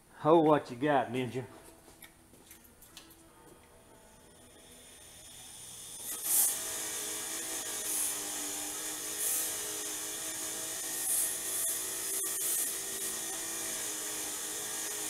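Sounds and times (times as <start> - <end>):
wire wheel running: 4.4 - 15.0.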